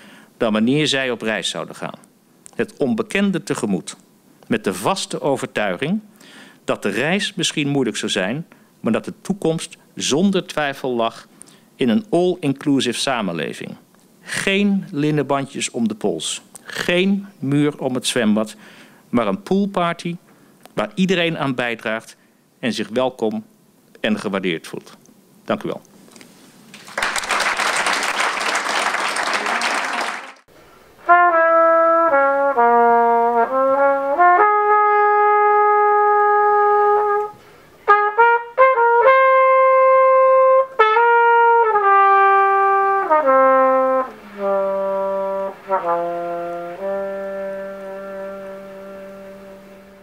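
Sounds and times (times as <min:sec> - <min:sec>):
audience applauding: 0:26.7 - 0:30.5
brass instrument slow melody: 0:31.0 - 0:50.0.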